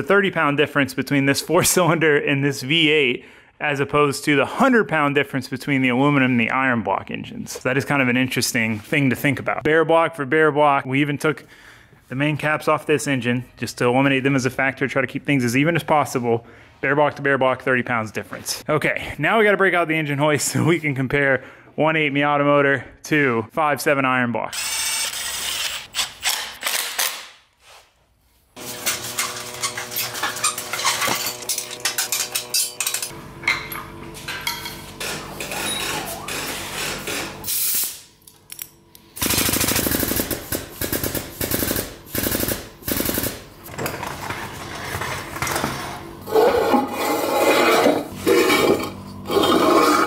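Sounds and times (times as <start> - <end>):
steel tools clanking: 28.8 - 36.4.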